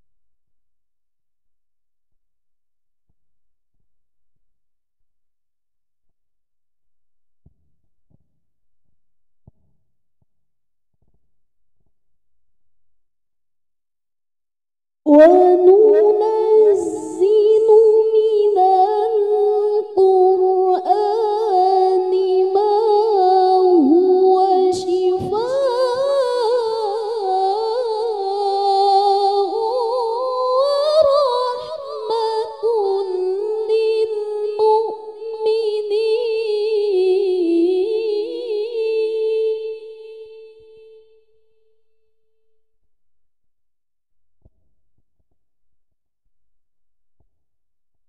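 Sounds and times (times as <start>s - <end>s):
woman reciting melodically: 15.1s - 41.2s.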